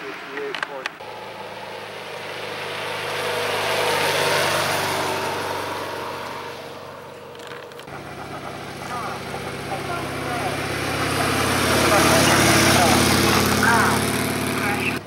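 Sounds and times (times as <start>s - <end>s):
motorcycle engine steady note: 1.0s - 15.0s
motorcycle passing by: 1.0s - 15.0s.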